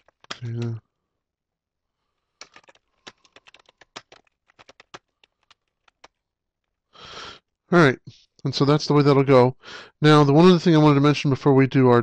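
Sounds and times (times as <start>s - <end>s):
keyboard typing clicks: 0.0s - 0.8s, 2.4s - 6.2s.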